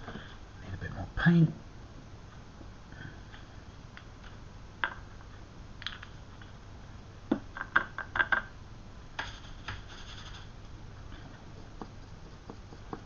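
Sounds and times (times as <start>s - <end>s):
scratchy rustle: 9.3s - 10.6s
painting supplies clicking and tapping: 11.1s - 13.0s.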